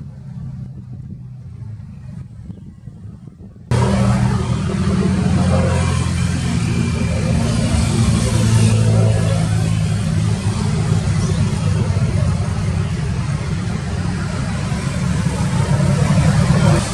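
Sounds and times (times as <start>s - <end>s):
ship engine humming: 3.7s - 16.9s
water wash: 3.7s - 16.9s.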